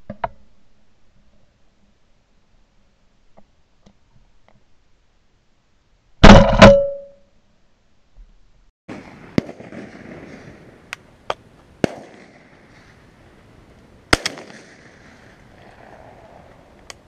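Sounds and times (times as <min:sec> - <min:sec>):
shotgun shots with echo: 0:11.8 - 0:12.5, 0:14.1 - 0:15.1.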